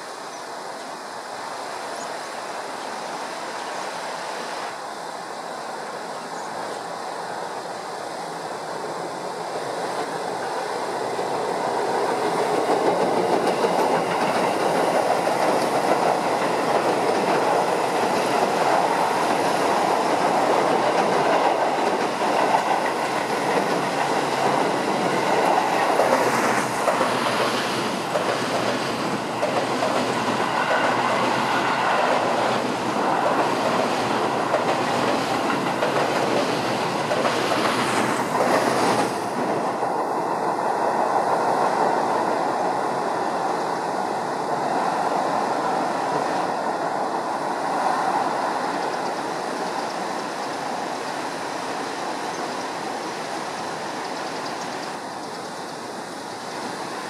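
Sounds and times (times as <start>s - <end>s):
train wheels on rail: 0.0s - 57.0s.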